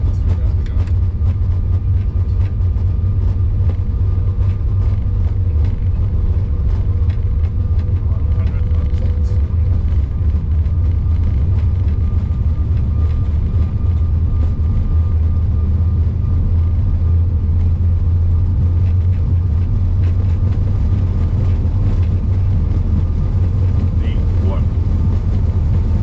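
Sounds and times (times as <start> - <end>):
aircraft engines and airflow rumble: 0.0 - 26.0.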